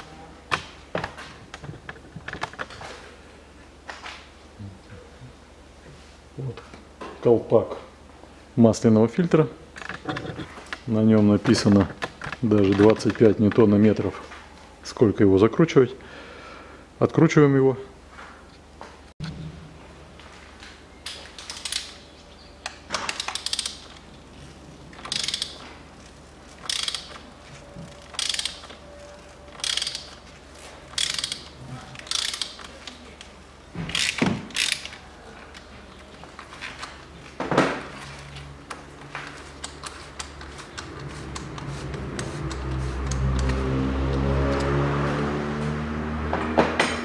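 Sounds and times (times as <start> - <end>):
ratchet wrench clicking: 21.5 - 22.0, 23.1 - 23.9, 25.0 - 25.6, 26.6 - 27.2, 28.0 - 28.8, 29.5 - 30.2, 30.9 - 32.7, 33.9 - 35.0, 39.6 - 43.6.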